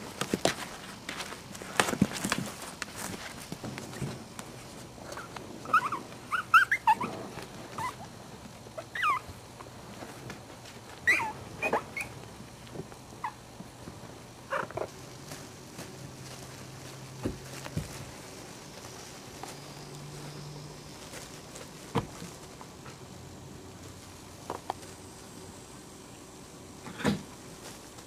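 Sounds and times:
puppies squeaking and whimpering: 5.1 - 8.0, 8.8 - 9.3, 11.0 - 12.2.

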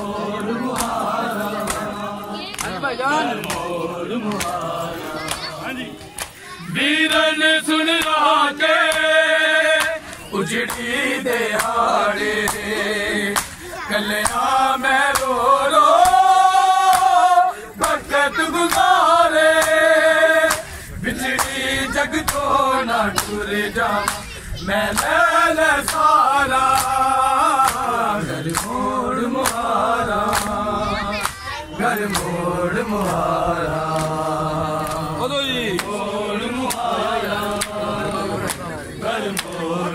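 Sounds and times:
men chanting in unison: 0.0 - 39.9
hands slapping chests: 0.7 - 1.0, 3.4 - 4.6, 5.2 - 6.4, 8.8 - 9.1, 9.8 - 10.9, 11.6 - 11.8, 12.4 - 12.7, 13.3 - 13.6, 15.1 - 15.4, 18.7 - 19.0, 19.6 - 19.8, 20.5 - 21.6, 23.2 - 23.4, 24.9 - 25.2, 25.8 - 26.1, 26.7 - 27.0, 27.6 - 28.8, 29.4 - 29.7, 30.3 - 30.6, 31.2 - 32.4, 33.9 - 35.1, 36.6 - 36.9, 37.5 - 37.8, 38.4 - 38.7, 39.3 - 39.7.

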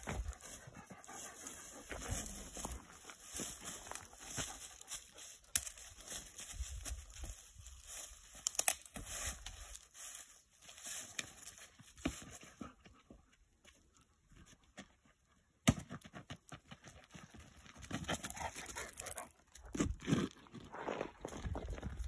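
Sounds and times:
stick working through leaves: 0.0 - 12.4
footsteps in dry leaves and gravel: 0.0 - 12.8, 16.8 - 22.0.

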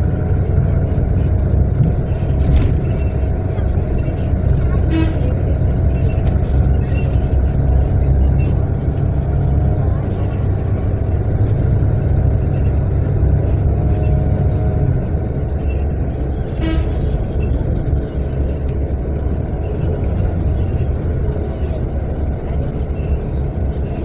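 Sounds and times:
bus engine rumble: 0.0 - 24.0.

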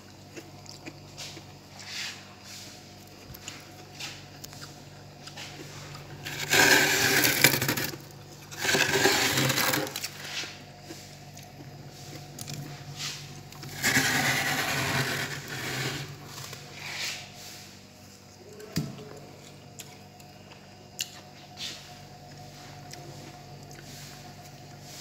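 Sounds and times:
fingers scraping frost: 6.2 - 7.9, 8.6 - 10.5, 13.6 - 17.2.

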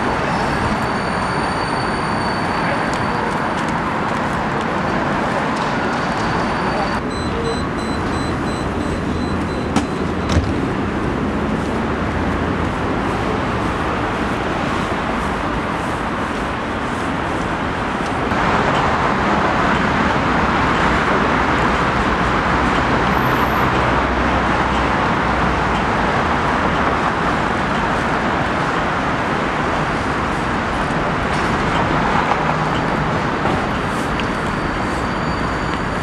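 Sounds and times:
city street traffic: 0.0 - 36.0.

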